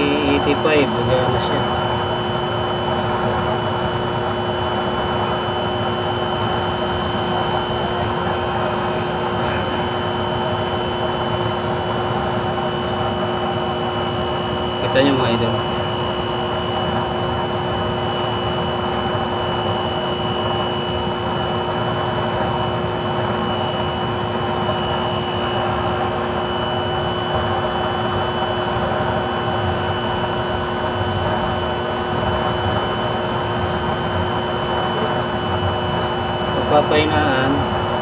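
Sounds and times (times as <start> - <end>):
electric blower running: 0.0 - 38.0.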